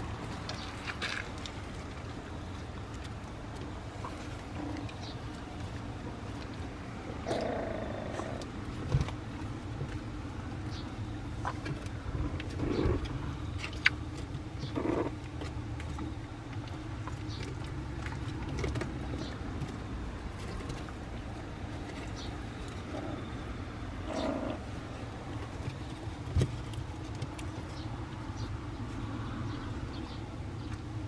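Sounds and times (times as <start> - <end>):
steady low hum: 0.0 - 31.0
puppy grunts: 7.2 - 8.5, 12.5 - 13.1, 24.0 - 24.7.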